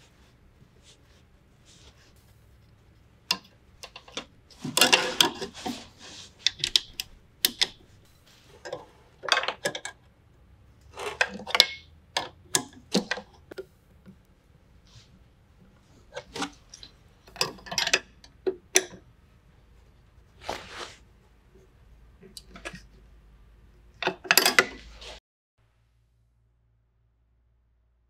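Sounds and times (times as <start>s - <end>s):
metal tubing rattle: 3.3s - 10.0s, 16.0s - 19.0s.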